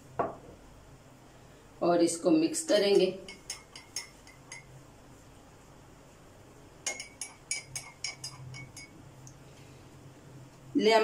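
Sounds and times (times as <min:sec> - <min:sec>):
spoon clinking in ceramic mug: 0:03.2 - 0:04.7, 0:06.8 - 0:09.0.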